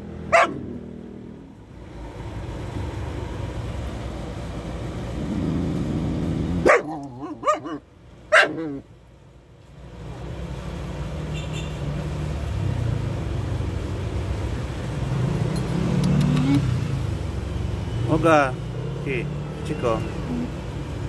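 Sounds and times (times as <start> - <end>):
low rumble of passing traffic: 0.0 - 21.0
dog barking: 0.3 - 0.7, 6.6 - 8.8.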